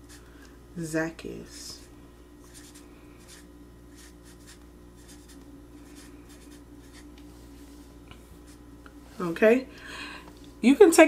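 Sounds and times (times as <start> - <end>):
low hum: 0.0 - 10.6
marker scratching on paper: 2.5 - 7.1.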